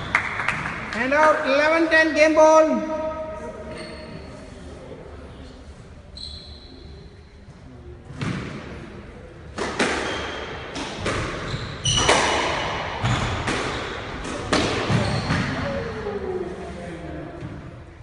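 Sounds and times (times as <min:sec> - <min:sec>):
squash ball hitting rackets and walls: 0:08.1 - 0:15.7.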